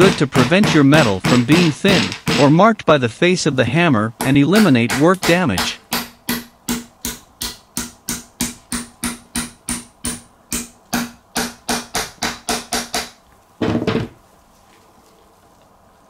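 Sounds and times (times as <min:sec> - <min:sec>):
handling noise: 0:00.0 - 0:02.6, 0:13.6 - 0:16.0
hammer tapping metal pin: 0:04.2 - 0:13.1.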